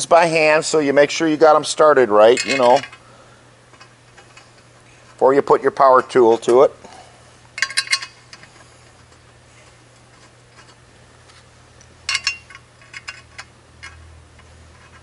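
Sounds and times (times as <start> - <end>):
metallic clicks of screws: 11.8 - 15.0.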